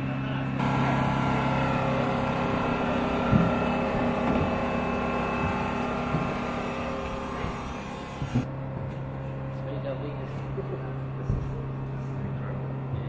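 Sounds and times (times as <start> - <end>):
machine hum with whining tones: 0.0 - 13.0.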